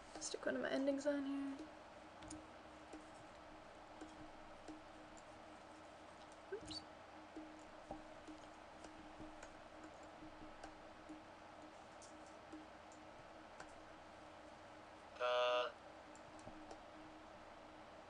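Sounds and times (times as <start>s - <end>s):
faint low hum: 0.0s - 18.0s
computer mouse clicks: 1.5s - 3.2s, 8.2s - 13.8s, 16.1s - 16.8s.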